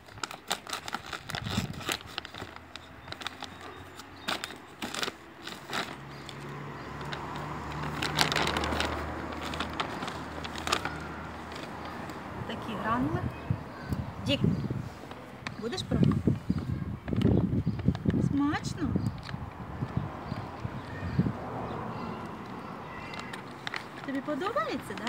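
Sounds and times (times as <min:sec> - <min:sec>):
plastic bag being torn open: 0:00.0 - 0:12.2
hands rustling in dry kibble: 0:00.0 - 0:12.7.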